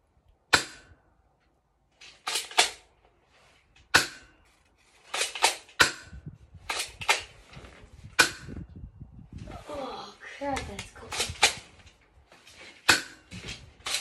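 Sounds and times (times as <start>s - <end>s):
bb gun cracks: 0.5s - 1.0s, 2.1s - 2.9s, 5.1s - 7.4s, 10.7s - 11.6s, 12.8s - 14.0s.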